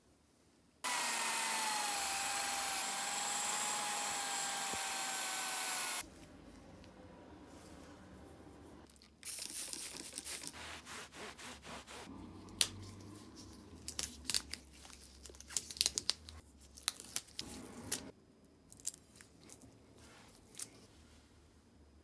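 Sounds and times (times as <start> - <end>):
tape crinkling crackles: 13.4 - 18.1.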